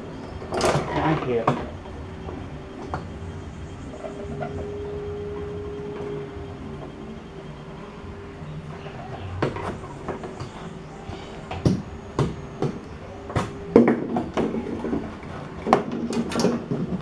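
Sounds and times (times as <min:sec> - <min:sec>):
steady low hum: 0:00.0 - 0:17.0
knocks and scraping on plastic: 0:11.5 - 0:17.0.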